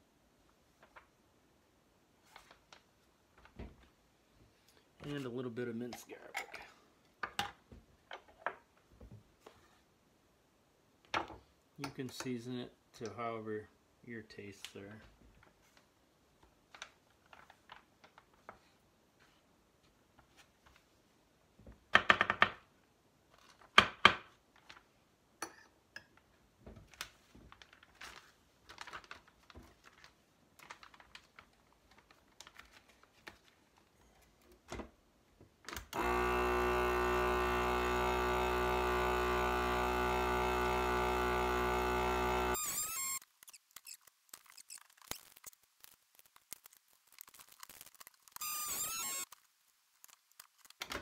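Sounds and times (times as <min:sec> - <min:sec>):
plastic bag rustling: 0:26.8 - 0:33.9, 0:43.3 - 0:48.4
plastic bag crinkling: 0:26.9 - 0:33.9, 0:43.2 - 0:48.4, 0:49.2 - 0:51.0
vacuum sealer pump droning: 0:35.9 - 0:43.1.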